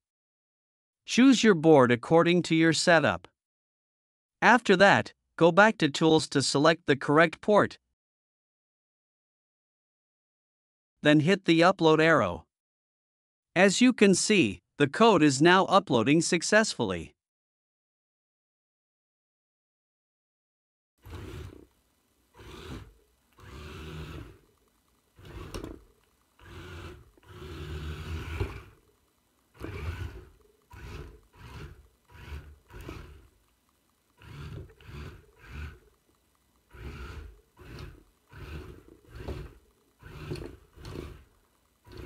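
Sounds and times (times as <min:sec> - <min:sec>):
small electric motors buzzing: 0:21.0 - 0:33.5, 0:34.1 - 0:42.0.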